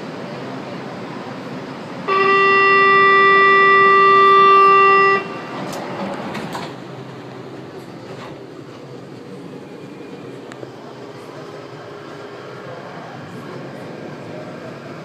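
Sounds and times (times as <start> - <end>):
train hum: 0.0 - 15.0.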